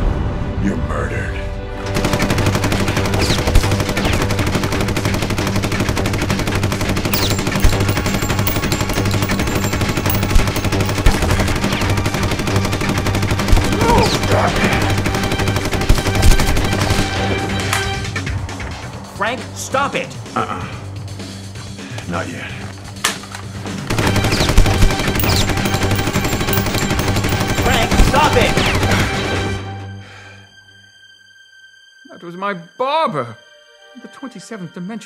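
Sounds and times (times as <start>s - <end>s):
submachine gun firing full-auto: 2.0s - 7.2s.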